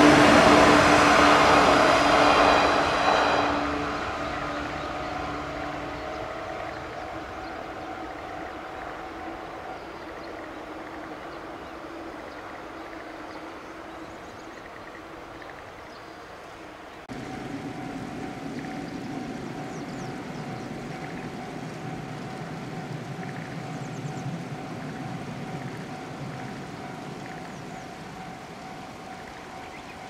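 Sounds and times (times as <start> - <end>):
low rumble: 17.1 - 29.5.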